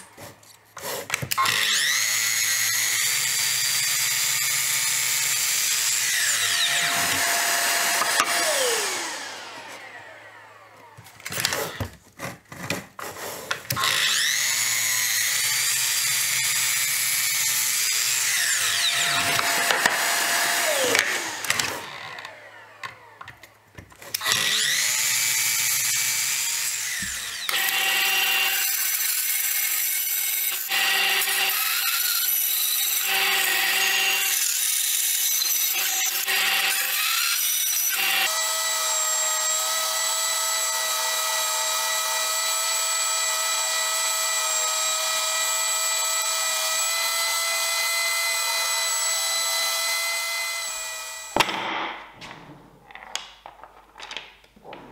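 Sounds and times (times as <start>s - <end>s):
mitre saw cutting plywood: 0.0s - 52.2s
spindle sander running: 1.4s - 11.8s, 13.8s - 23.2s.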